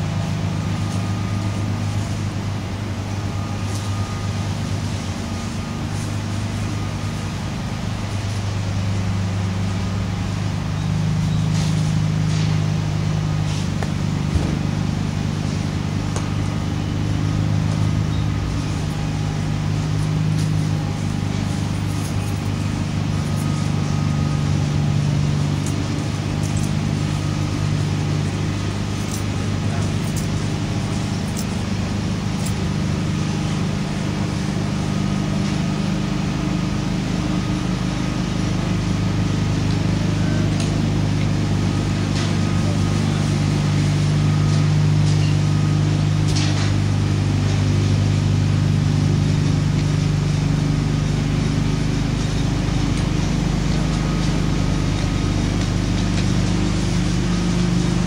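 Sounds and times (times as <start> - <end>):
low motor drone: 0.0 - 58.0.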